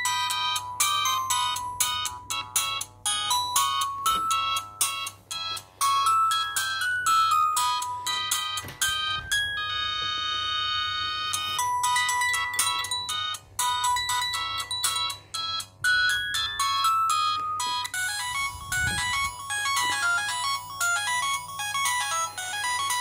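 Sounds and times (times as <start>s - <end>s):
polyphonic phone ringtone melody: 0.0s - 23.0s.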